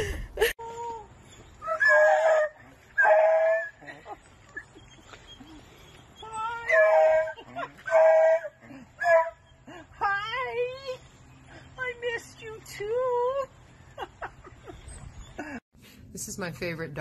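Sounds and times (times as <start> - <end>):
dog howling: 6.2 - 9.4.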